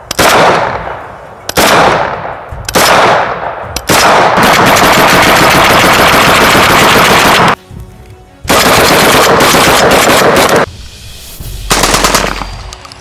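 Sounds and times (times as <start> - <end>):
automatic shotgun bursts: 3.8 - 7.6, 8.5 - 10.7, 11.7 - 12.4.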